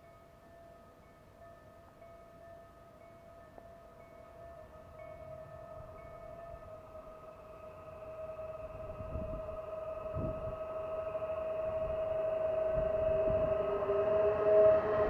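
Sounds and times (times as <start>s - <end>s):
electric train whine: 0.0s - 15.0s
lower tone: 4.3s - 15.0s
low rumbling gusts: 5.3s - 15.0s.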